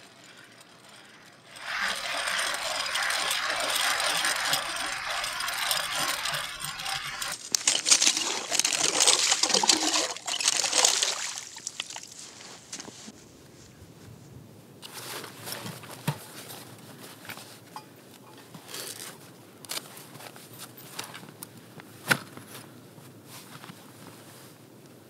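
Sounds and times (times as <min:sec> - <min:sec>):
clothing and backpack rustling: 0:01.6 - 0:14.2
crunches on snow: 0:01.6 - 0:14.2.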